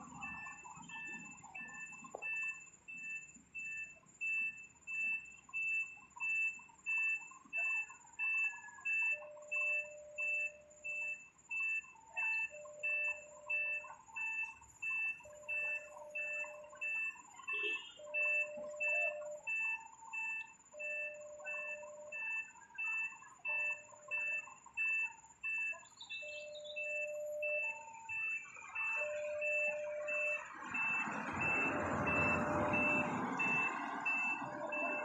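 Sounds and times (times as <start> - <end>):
truck reversing alarm beeping: 0.0 - 35.0
lower alarm tone: 6.2 - 35.0
motorcycle engine and tyres: 25.5 - 35.0.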